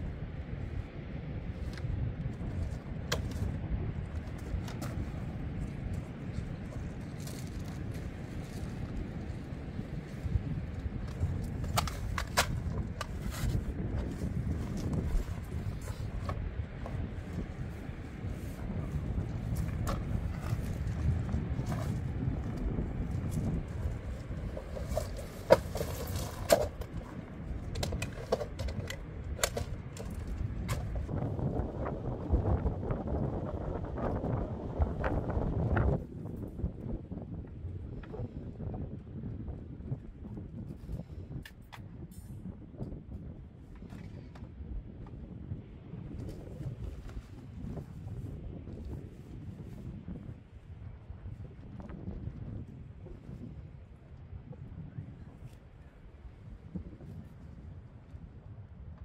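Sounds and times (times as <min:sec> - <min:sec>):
wind: 0:00.0 - 0:59.0
tent fastenings clicking: 0:11.0 - 0:16.4, 0:24.4 - 0:31.1.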